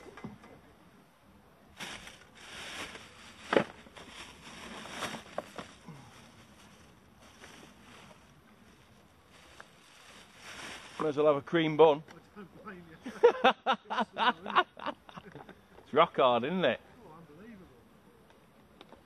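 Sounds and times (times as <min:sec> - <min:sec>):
fishing gear rustling: 0:01.8 - 0:11.2.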